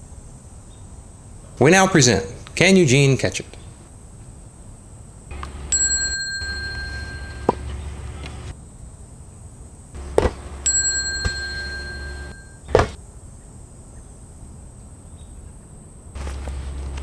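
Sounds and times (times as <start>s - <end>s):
high ringing tone: 5.3s - 8.5s, 10.0s - 12.9s
sharp knocks: 6.6s - 8.5s, 10.0s - 13.0s
inflatable ball thump: 10.0s - 13.0s.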